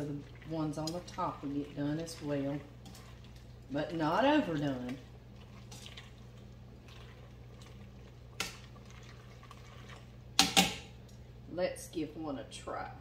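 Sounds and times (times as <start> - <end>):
broth bubbling: 0.0 - 10.4
metal utensil stirring noodles: 0.0 - 10.7.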